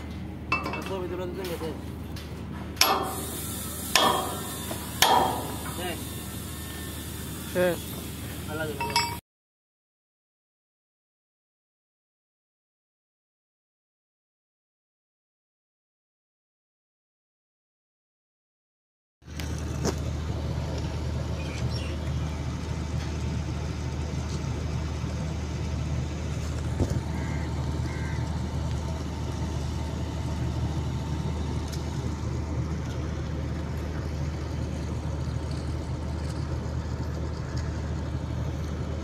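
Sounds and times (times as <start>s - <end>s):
large engine rumbling: 0.0s - 9.2s, 19.2s - 39.0s.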